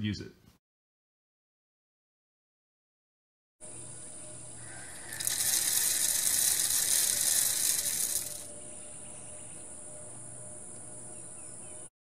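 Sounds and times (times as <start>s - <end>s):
seed thrower hissing rattle: 4.5s - 8.5s.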